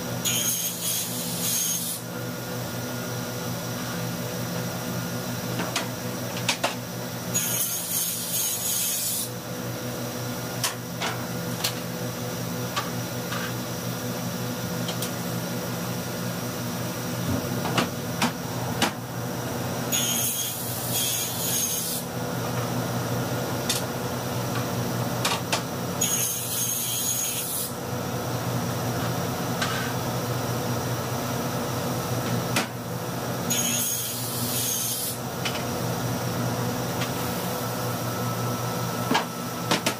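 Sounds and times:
table saw cutting wood: 0:00.2 - 0:02.1, 0:07.3 - 0:09.4, 0:19.9 - 0:22.1, 0:26.0 - 0:27.8, 0:33.5 - 0:35.2.

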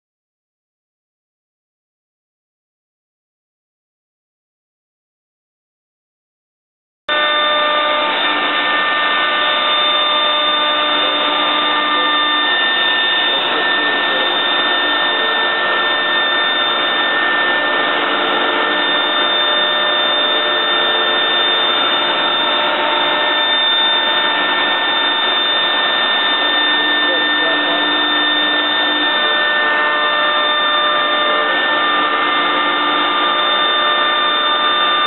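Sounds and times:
cnc router spindle whine: 0:07.1 - 0:35.0.

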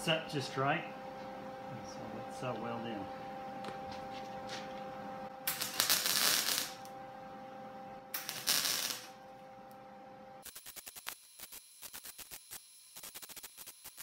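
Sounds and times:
welder hum: 0:00.0 - 0:14.0
welding arc crackling: 0:05.4 - 0:06.9, 0:08.1 - 0:09.2, 0:10.4 - 0:14.0.

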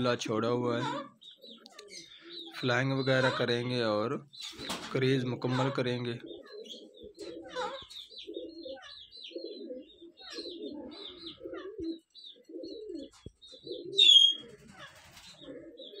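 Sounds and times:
birds chirping: 0:00.0 - 0:16.0
doves cooing: 0:00.0 - 0:16.0
loud sharp bird call: 0:13.9 - 0:15.2.

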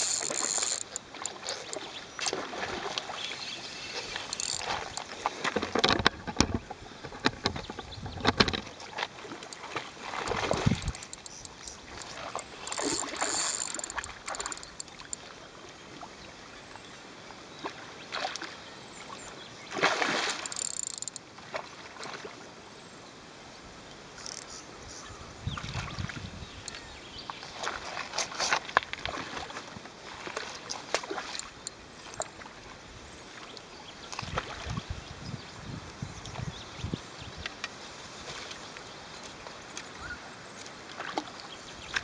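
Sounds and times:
fish thrashing and splashing: 0:00.0 - 0:03.2, 0:03.9 - 0:15.2, 0:19.7 - 0:21.2
lapping water: 0:08.8 - 0:15.2.

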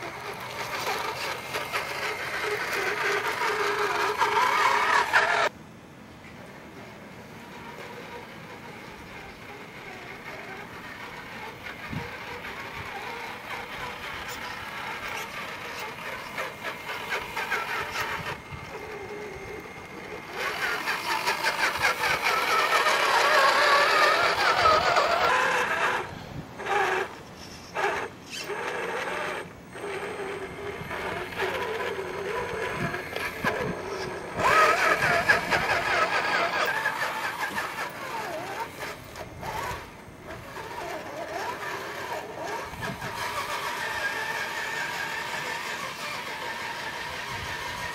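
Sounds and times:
electric motor and gearbox whining: 0:00.0 - 0:05.6, 0:06.3 - 0:47.9.

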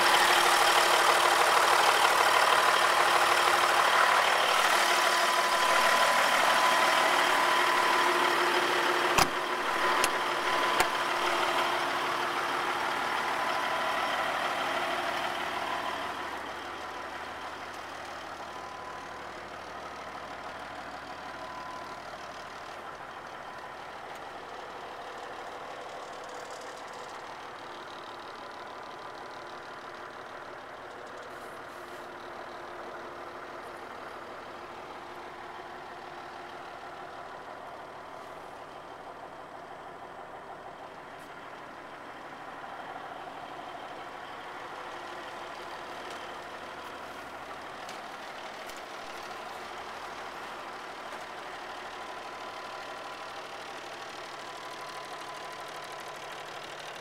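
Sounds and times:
diesel truck engine idling: 0:00.0 - 0:57.0
sharp clicks or knocks: 0:09.1 - 0:11.0.

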